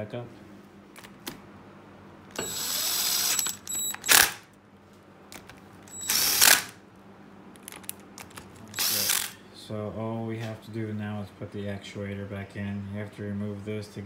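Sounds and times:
cordless drill whining: 2.4s - 4.4s, 5.9s - 6.7s, 8.7s - 9.4s.

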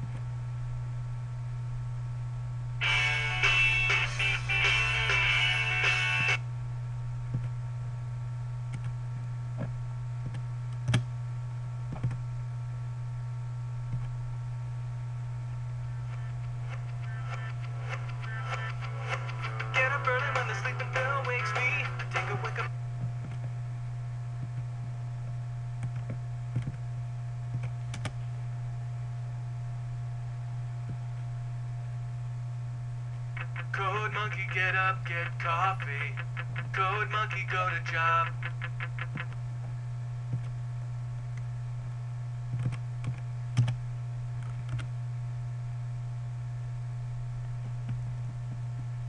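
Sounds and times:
steady low hum: 0.0s - 49.0s
guitar song: 2.8s - 6.4s, 15.9s - 22.8s, 33.4s - 39.3s.

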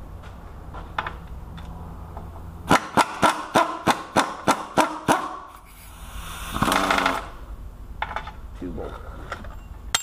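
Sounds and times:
metal scrape: 5.5s - 7.4s.

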